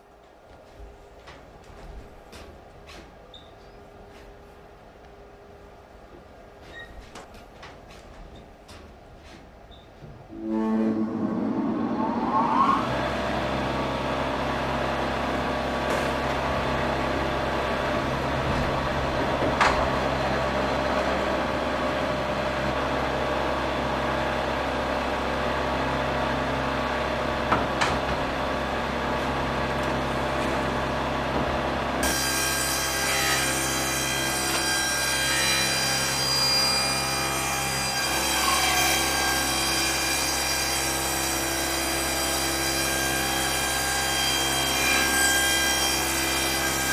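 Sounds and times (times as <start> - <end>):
ringing saw whine: 10.3 - 15.2
sawmill saw humming: 10.3 - 46.9.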